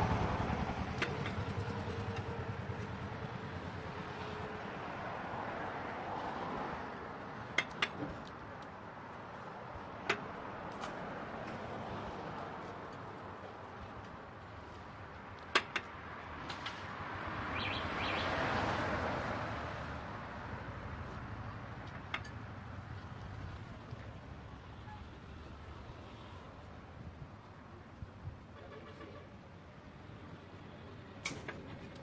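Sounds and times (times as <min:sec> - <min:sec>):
vehicle passing by: 0:00.0 - 0:07.3, 0:16.3 - 0:21.6
street traffic: 0:00.0 - 0:32.0.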